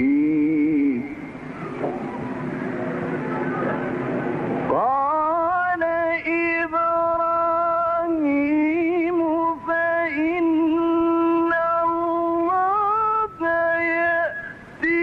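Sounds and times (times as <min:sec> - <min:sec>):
man reciting melodically: 0:00.0 - 0:01.4, 0:04.7 - 0:15.0.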